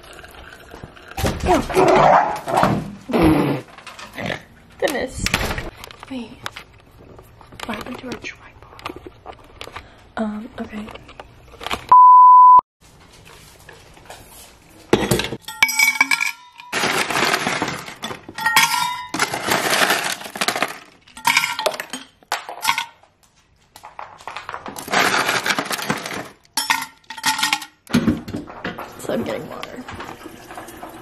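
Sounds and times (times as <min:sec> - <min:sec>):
ice clinking in metal bottle: 0:15.0 - 0:23.0, 0:24.8 - 0:27.8
ice cubes rattling: 0:16.0 - 0:22.8, 0:23.9 - 0:27.8.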